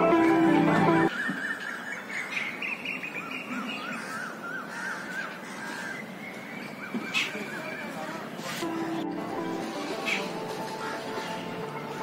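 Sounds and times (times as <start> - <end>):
plucked-string background music: 0.0 - 1.1, 8.6 - 12.0.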